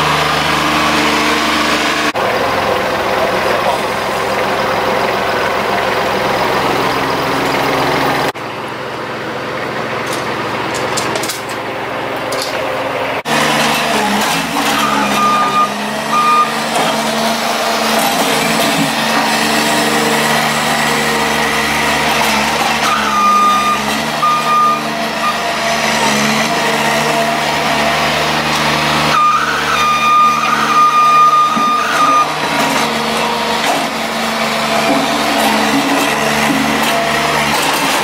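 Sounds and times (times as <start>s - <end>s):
diesel engine running: 0.0s - 38.0s
backup alarm beeping: 14.6s - 16.7s, 22.8s - 25.4s, 29.2s - 32.5s.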